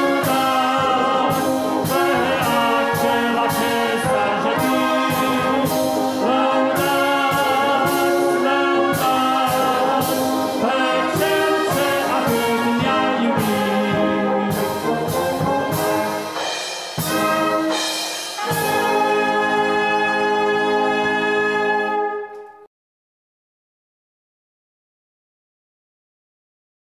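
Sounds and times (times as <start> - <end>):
brass band playing a hymn: 0.0 - 22.6.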